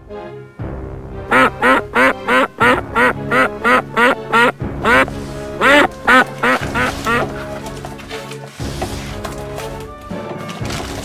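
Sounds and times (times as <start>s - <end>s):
background music: 0.0s - 11.0s
duck quacking: 1.3s - 7.4s.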